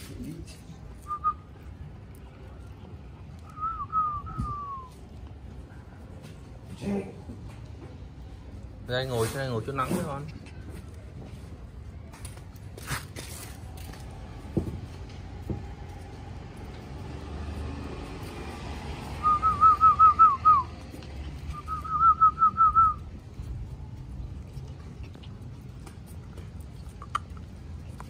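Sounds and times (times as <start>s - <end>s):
short whistled notes: 3.5s - 5.0s.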